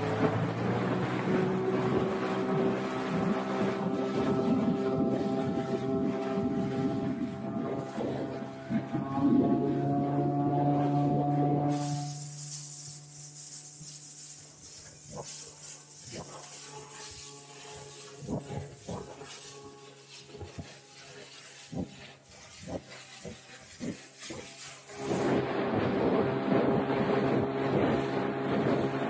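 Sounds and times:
motorboat engine running slowly: 0.0 - 29.0.

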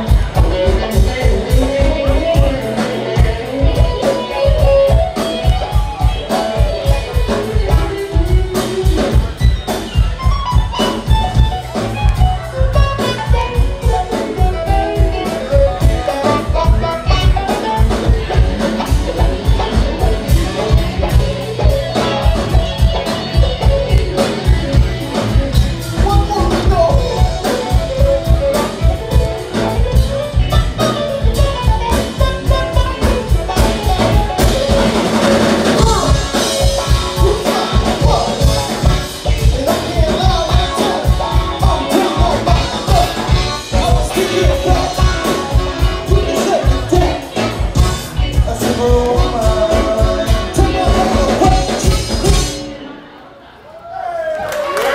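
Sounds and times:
person singing into a microphone: 0.0 - 9.1, 29.8 - 52.6
steady drum beat: 0.0 - 52.7
live band playing: 0.0 - 54.9.

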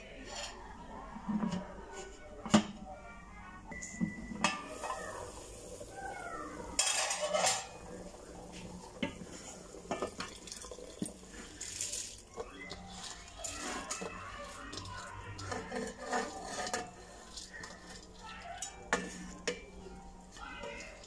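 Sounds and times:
pot lid clinking and scraping: 6.8 - 11.1, 15.4 - 19.7.

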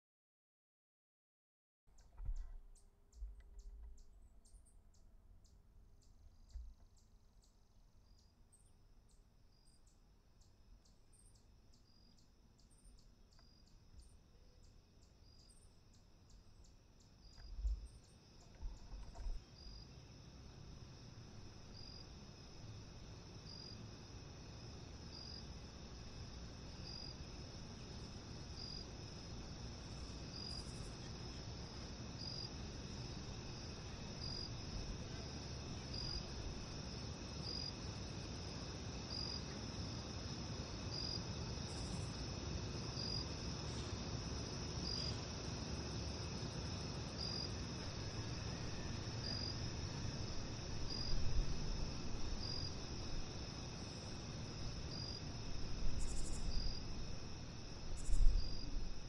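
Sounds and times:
cricket chirp: 1.9 - 59.0
crickets trilling: 2.0 - 59.0
low background rumble: 17.2 - 23.3.

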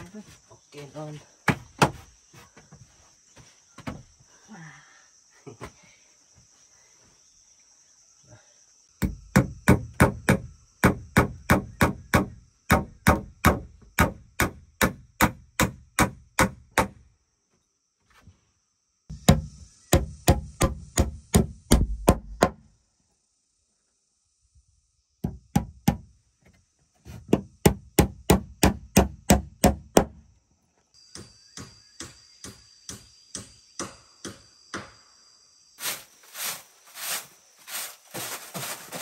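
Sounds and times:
high insect drone: 0.0 - 39.0
machete scraping wooden planks: 35.8 - 39.0.

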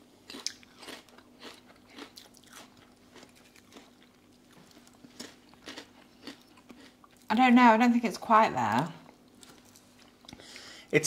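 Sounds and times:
potato crisps crunching in mouth: 0.2 - 7.3.

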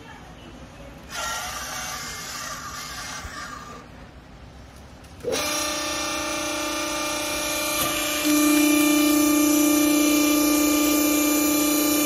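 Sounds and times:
hydraulic pump motor humming: 5.1 - 12.0.

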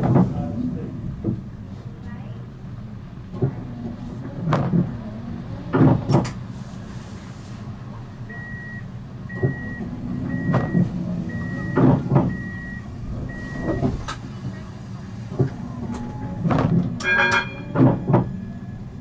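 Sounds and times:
tram humming: 0.0 - 19.0
high door warning beep: 8.3 - 14.7.

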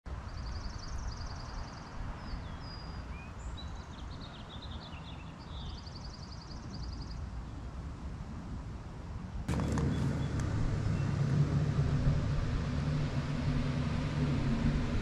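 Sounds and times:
low steady rumble: 9.4 - 15.0
birds chirping and whistling: 9.5 - 11.2.

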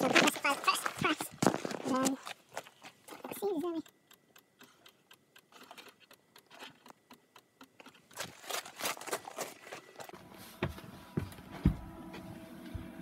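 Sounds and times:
footsteps on gravel: 0.0 - 3.0, 8.2 - 11.8.

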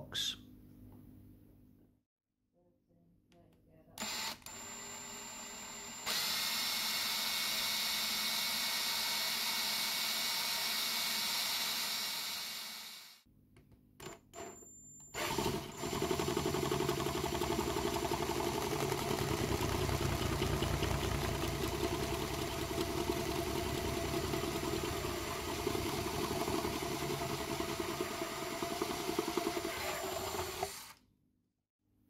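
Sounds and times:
power drill boring through plastic: 4.0 - 13.2, 15.2 - 31.0.

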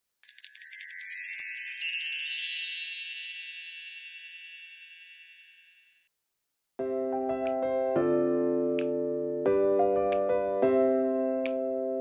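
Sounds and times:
high chime-like shimmer: 0.2 - 6.1.

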